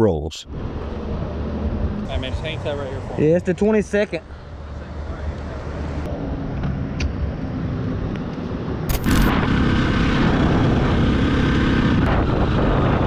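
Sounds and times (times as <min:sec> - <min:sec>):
wind rush: 0:07.6 - 0:13.0.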